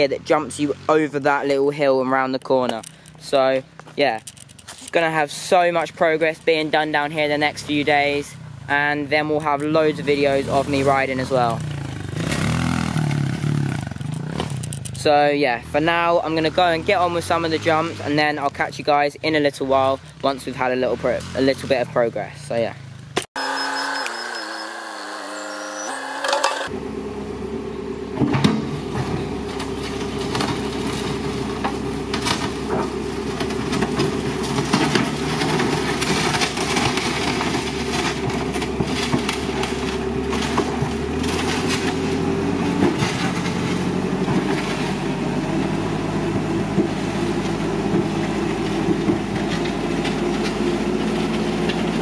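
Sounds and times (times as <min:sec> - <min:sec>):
diesel engine running: 0:00.0 - 0:18.6, 0:23.2 - 0:52.0.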